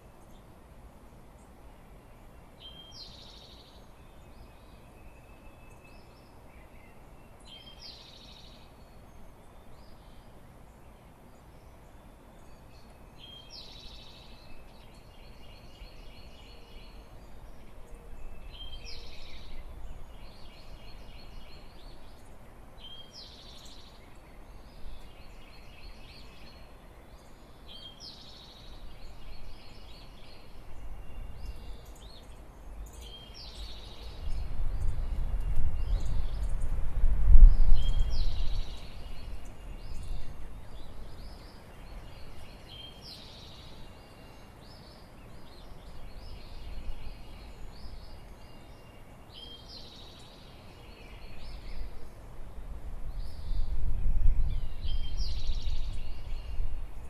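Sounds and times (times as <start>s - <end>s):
songbird singing trill: 0.0s - 57.0s.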